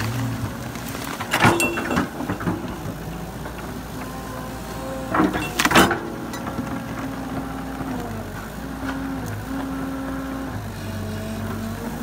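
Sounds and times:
brush crackling: 0.0s - 2.7s
excavator diesel engine running: 0.0s - 12.0s.

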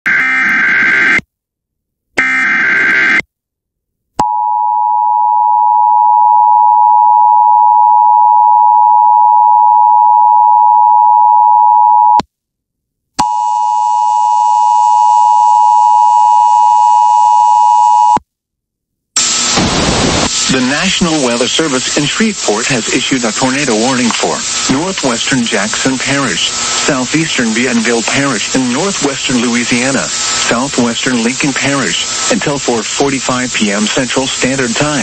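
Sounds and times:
harsh data bursts: 19.2s - 35.0s.

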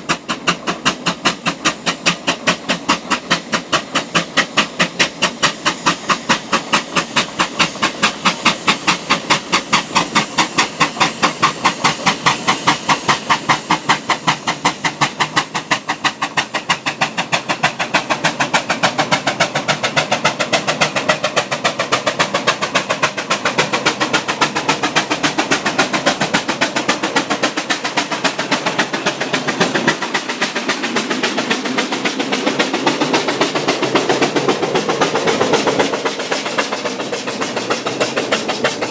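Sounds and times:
steam engine chuffing: 0.0s - 38.9s.

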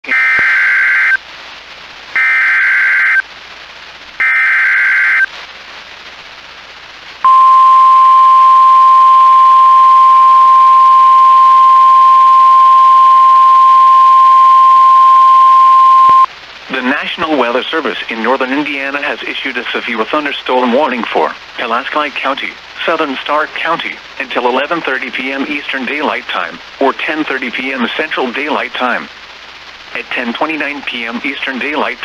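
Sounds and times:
steady warning alarm tone: 7.3s - 16.3s.

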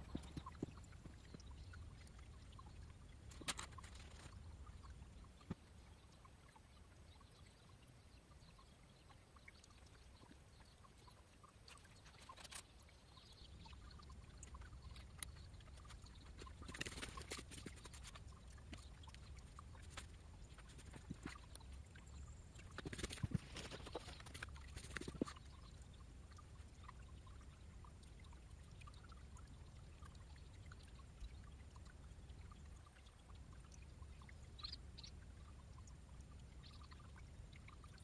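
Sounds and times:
water trickling into stone basin: 0.0s - 38.0s
small clicks and knocks: 3.3s - 4.4s, 11.7s - 12.8s.

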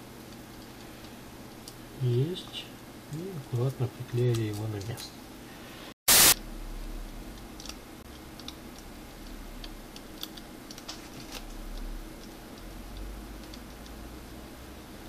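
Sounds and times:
low steady hum: 0.0s - 15.0s
fingers clicking and tapping electronics: 7.4s - 14.4s.

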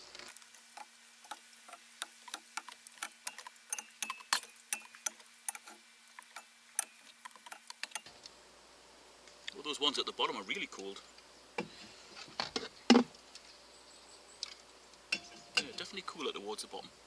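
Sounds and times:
drink cans clinking: 15.1s - 16.0s.

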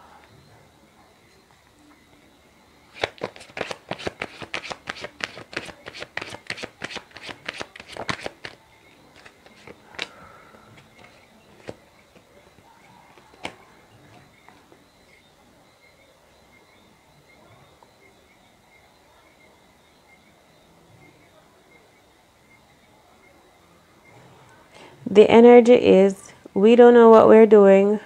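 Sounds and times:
cards being shuffled: 2.9s - 10.2s, 10.8s - 12.3s.

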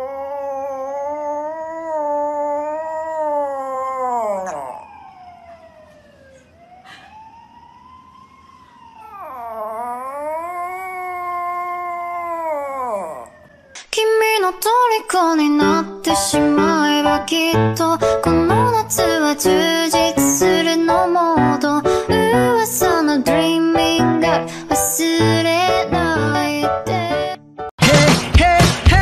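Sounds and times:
dog howling: 0.0s - 5.4s, 9.0s - 13.7s.

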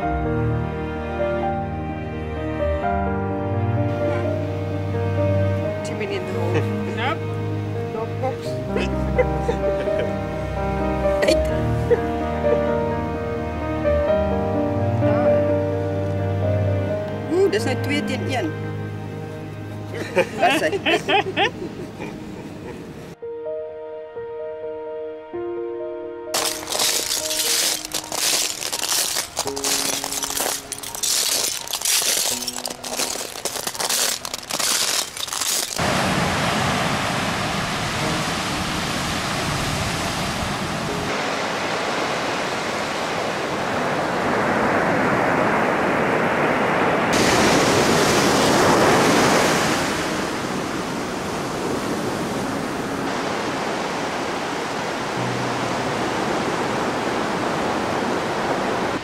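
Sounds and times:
wind: 0.0s - 23.2s, 26.3s - 59.0s
footsteps crunching on shells: 26.4s - 35.8s
surf rushing: 26.4s - 59.0s.

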